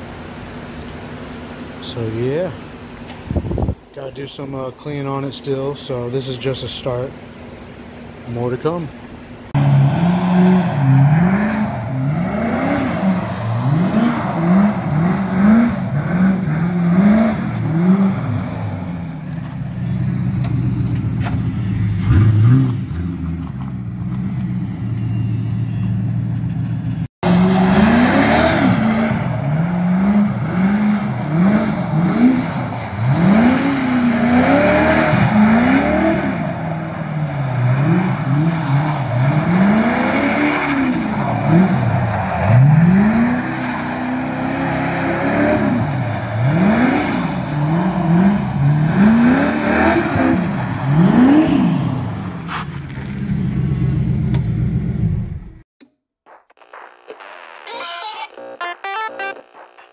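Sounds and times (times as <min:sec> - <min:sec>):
car engine revving: 0:09.5 - 0:55.6.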